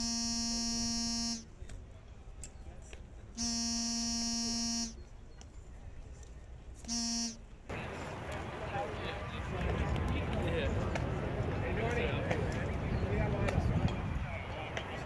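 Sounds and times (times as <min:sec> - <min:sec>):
buzzing horn blasts: 0:00.0 - 0:01.5, 0:03.4 - 0:05.0, 0:06.8 - 0:07.4.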